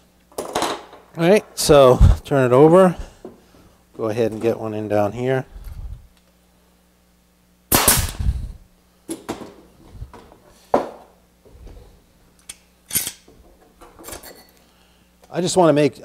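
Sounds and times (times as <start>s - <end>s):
nail gun shot: 7.7s - 8.3s.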